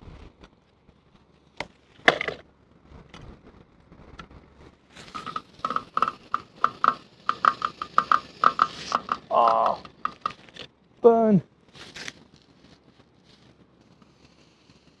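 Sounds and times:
sharp knocks: 5.2 - 10.5.

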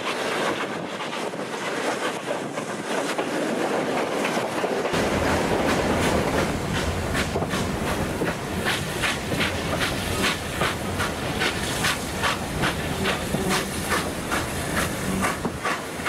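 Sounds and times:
steam hiss: 0.0 - 16.0
train rumbling on rails: 0.0 - 16.0
steam locomotive exhaust beats: 4.8 - 16.0.

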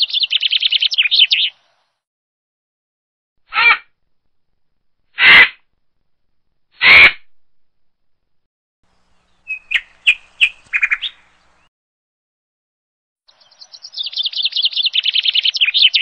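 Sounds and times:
short high bird chirps: 9.3 - 11.3, 13.3 - 16.0.

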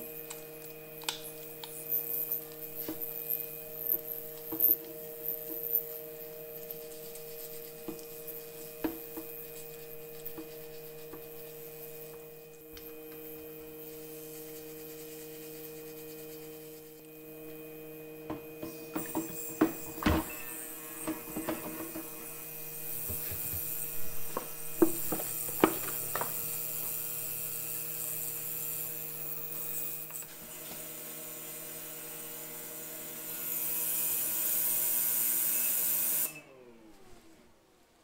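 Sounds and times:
parts cleaner electrical hum: 0.0 - 33.2
wire brush scrubbing metal: 4.6 - 12.4.

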